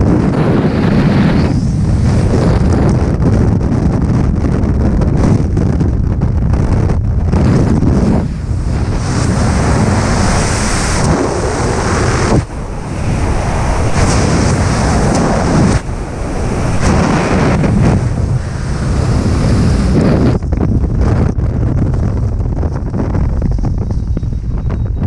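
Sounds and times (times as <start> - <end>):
wind rushing over microphone: 0.0 - 25.0.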